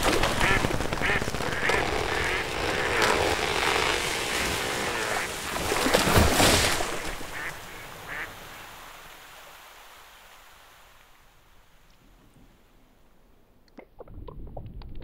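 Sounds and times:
tree crashing into water: 0.0 - 7.6
branches and leaves rushing: 0.0 - 10.9
duck quacking: 0.1 - 3.8, 4.6 - 5.9, 7.0 - 8.3.

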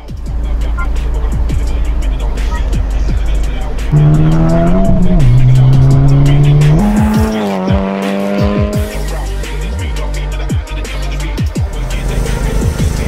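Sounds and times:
car engine revving: 0.0 - 10.0
electronic music with steady beat: 0.0 - 13.0.

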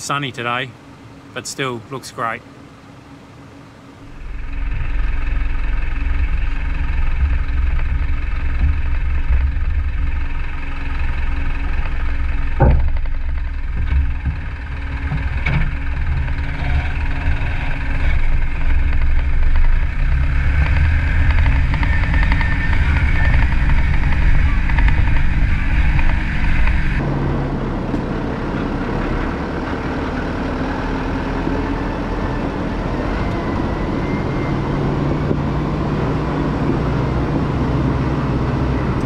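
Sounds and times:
truck diesel engine running: 0.0 - 39.0
sharp knocks: 12.5 - 16.3.

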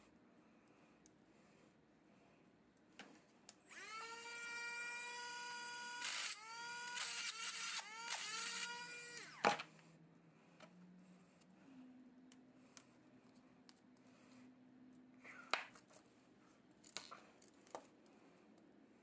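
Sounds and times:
small electric motor whirring: 3.7 - 9.5.

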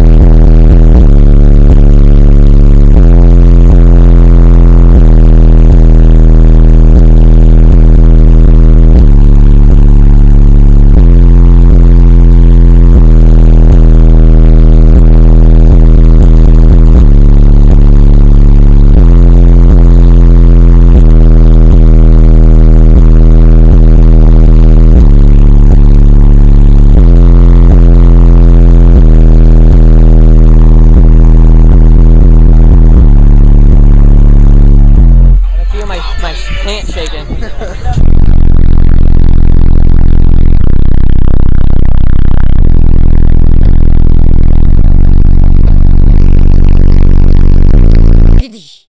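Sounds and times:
distorted car stereo bass: 0.0 - 48.9.

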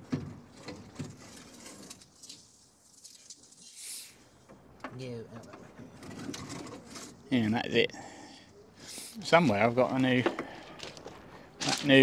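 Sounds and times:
soft hiss: 2.2 - 4.4
hand tools clicking and scraping: 9.8 - 12.0.

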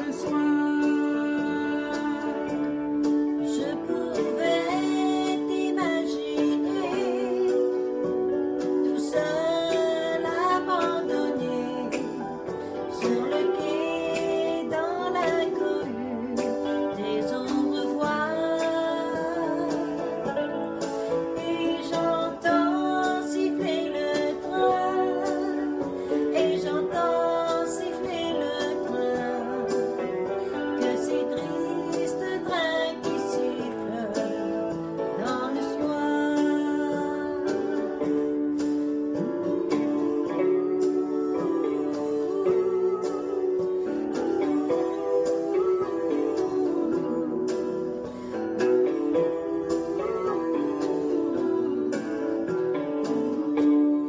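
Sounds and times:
guitar backing track: 0.0 - 54.0
women singing a slow ballad: 0.0 - 54.0.

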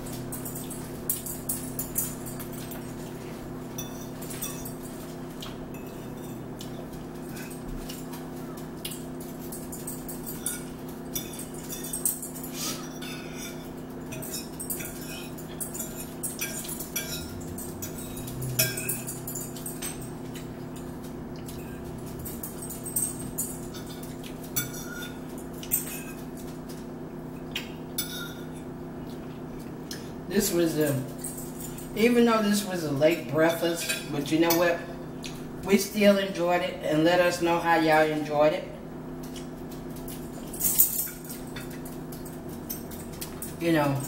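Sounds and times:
steady background hum: 0.0 - 44.0
cutlery clinking on plates: 8.8 - 20.5, 21.4 - 26.8.

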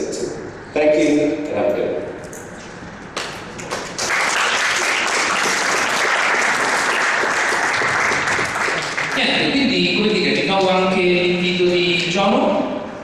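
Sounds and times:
audience applauding: 3.2 - 9.4.

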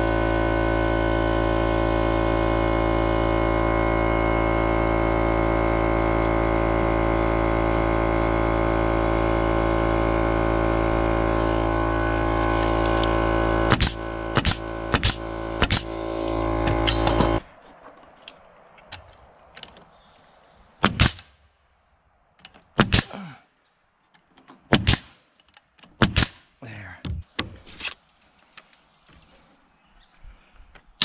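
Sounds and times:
pneumatic nailer shots: 9.8 - 17.4, 20.8 - 21.4, 22.7 - 23.2, 24.6 - 26.6.

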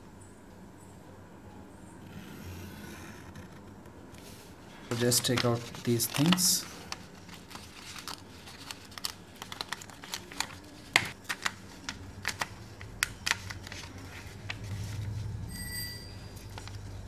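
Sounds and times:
paper crackling and rustling: 3.3 - 15.2.

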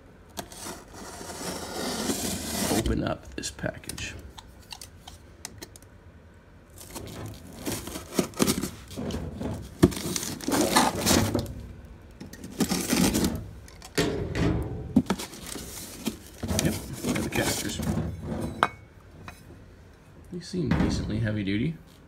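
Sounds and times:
cardboard box cut and torn open: 0.4 - 2.9, 12.5 - 13.3
plastic wrap rustling: 6.7 - 11.7, 12.3 - 14.0, 15.0 - 18.0.

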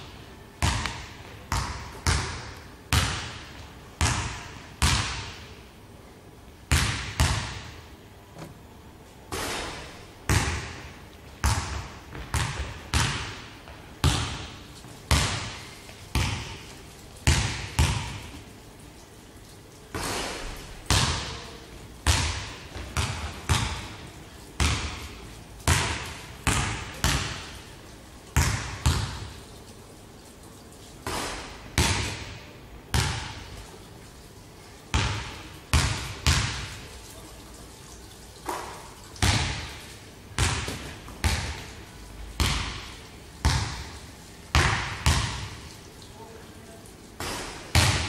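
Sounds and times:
basketball bouncing on wooden floor: 0.6 - 5.4, 6.7 - 7.8, 9.3 - 18.3, 20.9 - 21.4, 22.1 - 24.0, 24.6 - 27.5, 28.4 - 29.3, 31.8 - 33.5, 34.9 - 36.7, 38.5 - 39.8, 40.4 - 41.6, 42.4 - 45.7, 47.2 - 48.0.

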